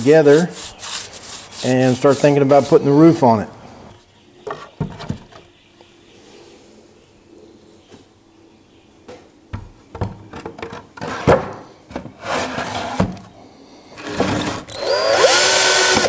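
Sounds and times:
cordless drill whining: 14.0s - 16.0s.

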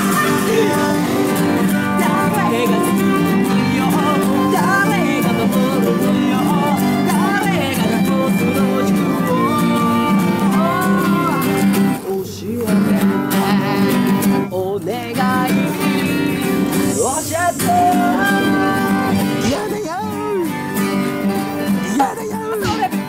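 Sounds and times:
violin playing: 0.0s - 11.9s, 15.6s - 22.0s
acoustic guitars strumming: 0.0s - 23.0s
man singing: 0.0s - 23.0s.

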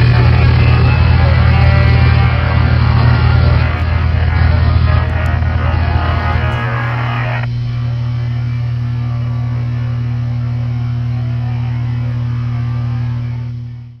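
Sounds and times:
low drone note: 0.0s - 14.0s.

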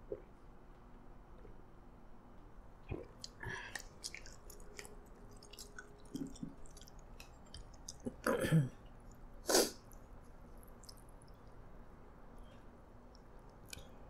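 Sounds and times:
wet mouth clicks and chewing: 2.8s - 11.7s, 13.1s - 14.0s.

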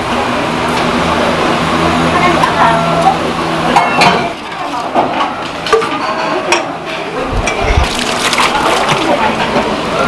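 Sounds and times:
dishes and utensils clinking: 3.7s - 6.8s.

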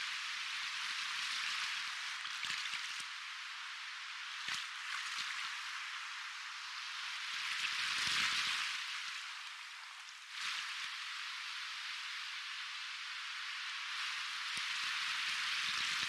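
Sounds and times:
soft ocean waves: 0.0s - 16.0s.

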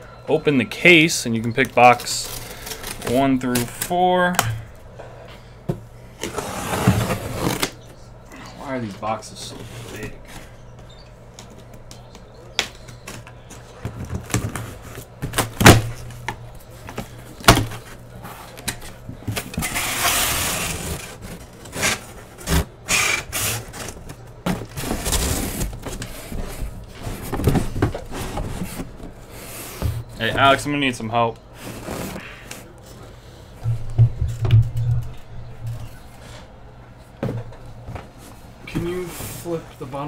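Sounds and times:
cardboard flaps scraping: 19.3s - 30.5s
cardboard boxes knocking: 33.6s - 35.8s.

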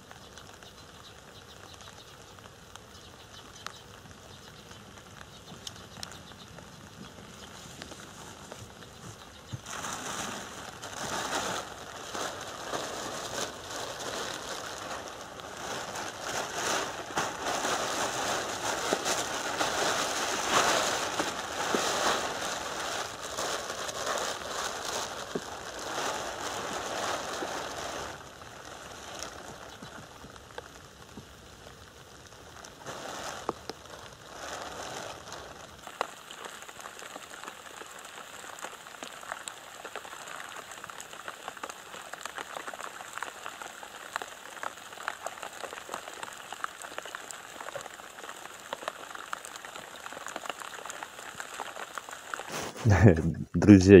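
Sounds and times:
rain pattering on water: 0.0s - 54.0s
plastic poncho rustling: 5.1s - 53.2s.

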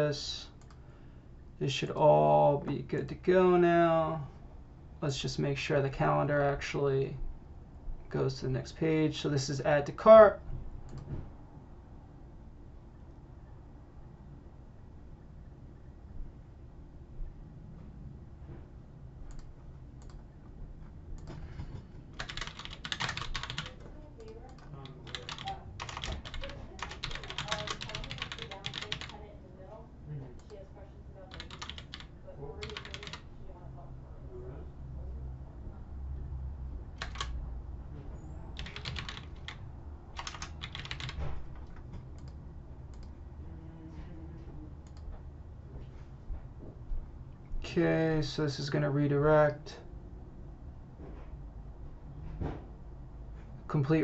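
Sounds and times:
low steady hum: 0.0s - 54.0s
typing on computer keyboard: 22.2s - 29.2s, 31.3s - 33.2s, 37.0s - 37.4s, 38.6s - 39.6s, 40.2s - 42.4s.

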